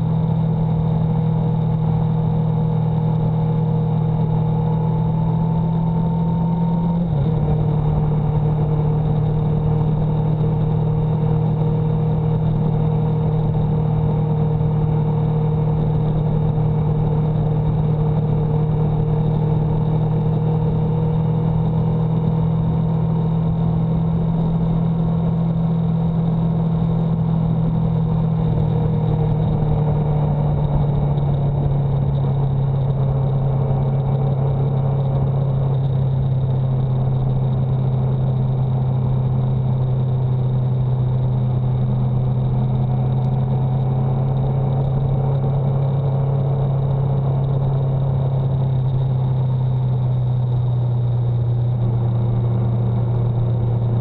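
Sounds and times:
road and wind noise: 0:00.0 - 0:54.0
vehicle engine drone: 0:00.0 - 0:54.0.

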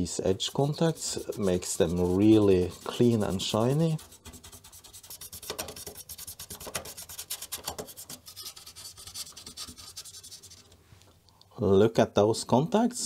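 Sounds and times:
pen scrubbing circuit board: 0:00.3 - 0:10.7.

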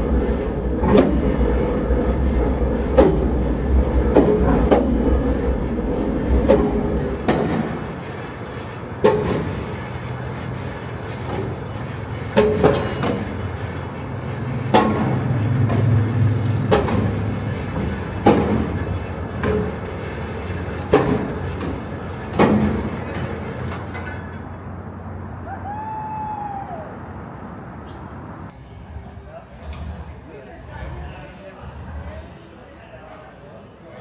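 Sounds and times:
wheels clicking over rail joints: 0:00.0 - 0:25.4
rail wheels rumbling: 0:00.0 - 0:34.0.

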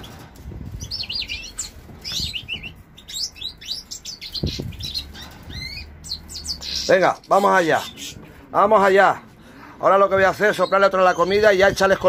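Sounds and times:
finches chirping: 0:00.7 - 0:08.2.

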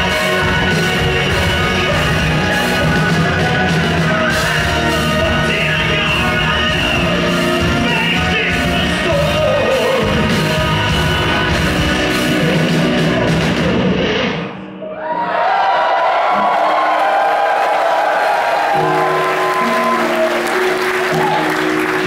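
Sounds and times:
man and woman singing: 0:00.0 - 0:13.6
metal band playing live: 0:00.0 - 0:14.7.

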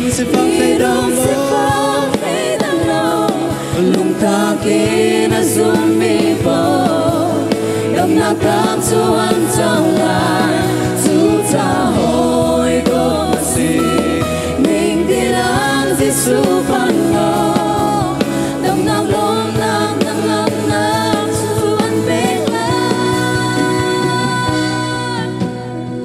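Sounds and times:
drums and cymbals: 0:00.0 - 0:26.0
electric guitar: 0:00.0 - 0:26.0
women singing together: 0:00.0 - 0:26.0.

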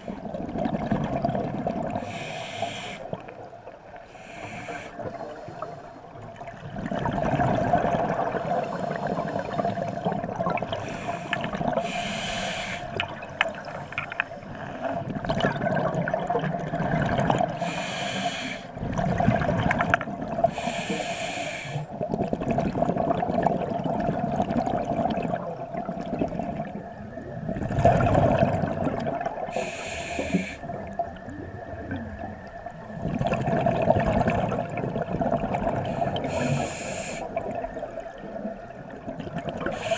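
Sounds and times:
bubbling gurgling exhalations: 0:00.0 - 0:02.2, 0:06.6 - 0:11.9, 0:14.7 - 0:17.6, 0:18.8 - 0:20.6, 0:21.9 - 0:26.8, 0:27.5 - 0:29.7, 0:33.0 - 0:38.3, 0:38.9 - 0:39.9
faint steady hum: 0:00.0 - 0:39.9
regulator hissing inhalations: 0:02.0 - 0:03.1, 0:04.1 - 0:06.0, 0:10.8 - 0:13.0, 0:17.6 - 0:18.7, 0:20.5 - 0:21.9, 0:29.5 - 0:30.7, 0:35.8 - 0:37.4.

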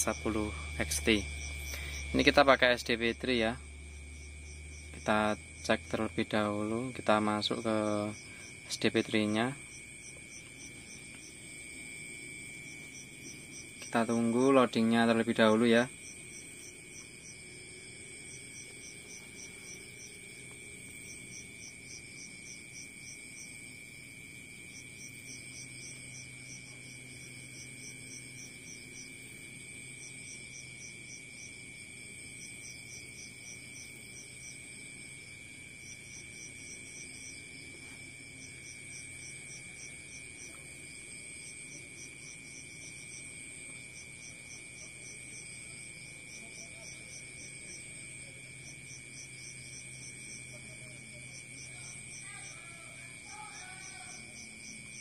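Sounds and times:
crickets chirping: 0:00.0 - 0:55.0
faint low hum: 0:00.0 - 0:55.0.

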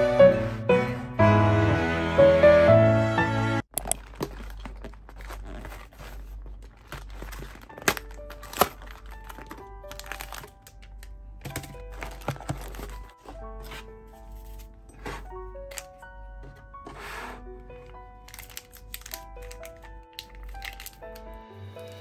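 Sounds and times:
sachets rustling: 0:03.8 - 0:22.0
faint soft background music: 0:05.1 - 0:22.0.

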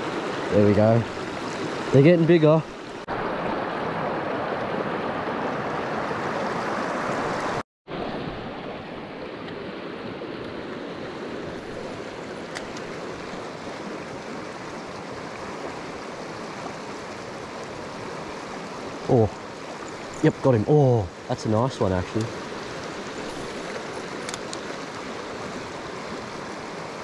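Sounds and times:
small click: 0:12.5 - 0:12.9, 0:24.2 - 0:24.7.

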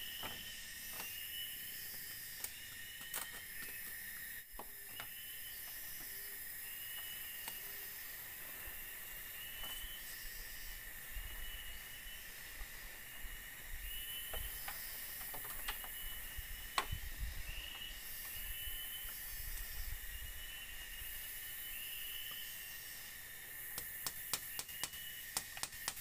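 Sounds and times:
insects chirping and whirring: 0:00.0 - 0:26.0.

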